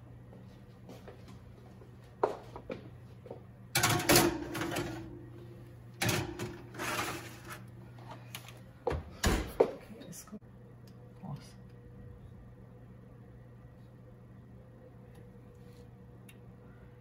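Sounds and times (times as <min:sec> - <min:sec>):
steady low hum: 0:00.0 - 0:17.0
metal baking trays scraping and clattering: 0:03.8 - 0:05.2, 0:06.0 - 0:07.7
oven door shutting: 0:06.0 - 0:07.6.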